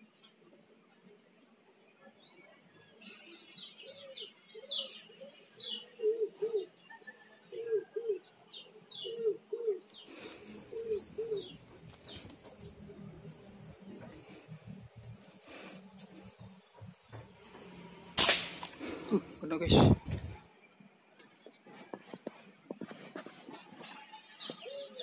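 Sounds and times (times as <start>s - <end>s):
small birds chirping: 0.0s - 25.0s
dove cooing: 3.8s - 15.7s.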